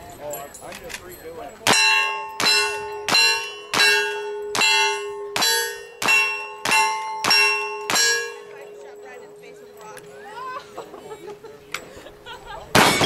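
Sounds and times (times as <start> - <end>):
steel target ringing: 1.6 - 11.0, 12.8 - 13.0
gunshots: 12.8 - 13.0.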